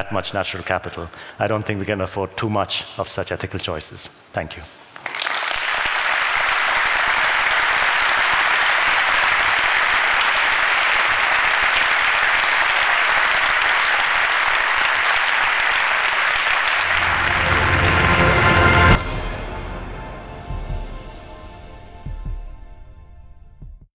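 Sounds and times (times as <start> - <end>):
large audience applauding: 5.0 - 19.0.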